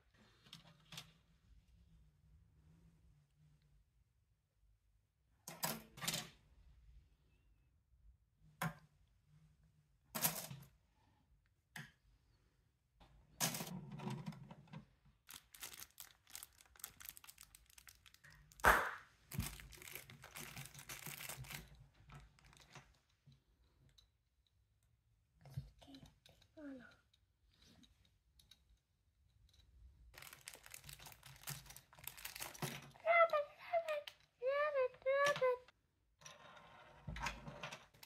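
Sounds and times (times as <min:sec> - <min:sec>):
plastic bag crinkling: 0:15.3 - 0:18.6, 0:19.3 - 0:22.7, 0:30.1 - 0:32.9.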